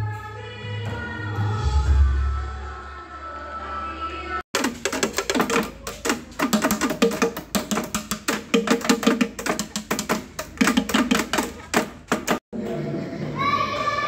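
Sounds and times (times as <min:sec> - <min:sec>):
fast clicking percussion: 0:04.6 - 0:12.5.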